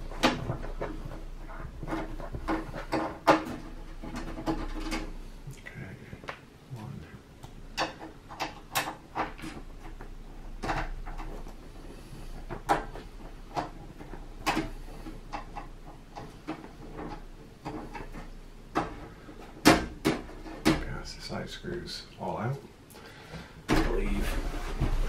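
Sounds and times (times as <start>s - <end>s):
small clicks and knocks: 7.4s - 20.9s.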